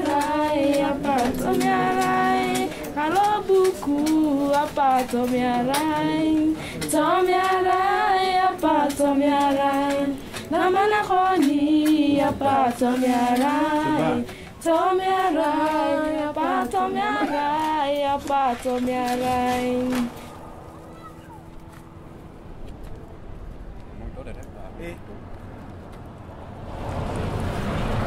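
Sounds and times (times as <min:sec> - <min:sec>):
woman singing unaccompanied: 0:00.0 - 0:20.2.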